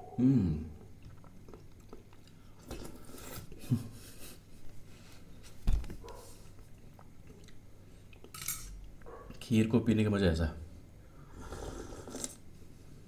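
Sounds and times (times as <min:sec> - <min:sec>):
chewing and mouth noises: 0:00.8 - 0:03.5, 0:06.6 - 0:08.3.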